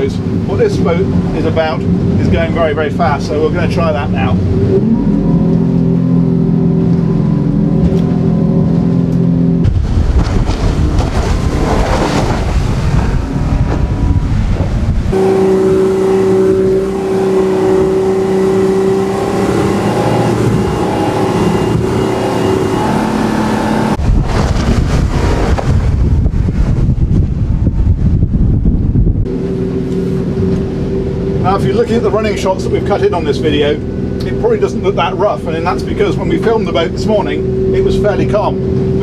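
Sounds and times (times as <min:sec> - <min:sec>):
outboard engine drone: 0:00.0 - 0:39.0
wind and water spray rushing: 0:09.5 - 0:31.5.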